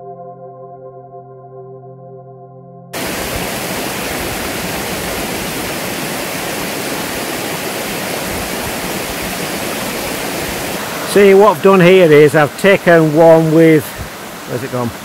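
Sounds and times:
background music with held tones: 0.0s - 3.0s
stream flowing over rocks: 3.0s - 15.0s.

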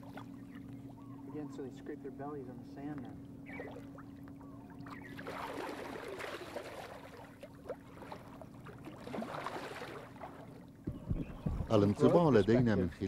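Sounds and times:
water splashing and sloshing: 0.0s - 1.1s, 2.8s - 13.0s
faint steady low hum: 0.0s - 13.0s.

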